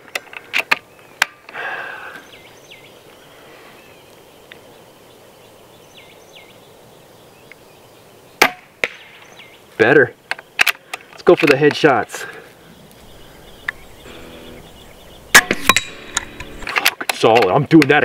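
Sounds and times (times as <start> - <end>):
faint bird calls: 0.2 - 11.1, 12.2 - 16.8
air gun shot crack: 15.3 - 16.9.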